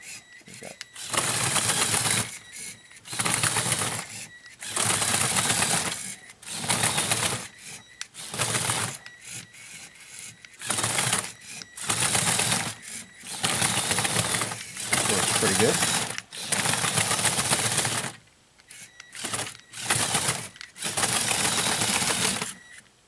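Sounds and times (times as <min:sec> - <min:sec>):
toy motor whirring with rattling: 0:00.0 - 0:22.8.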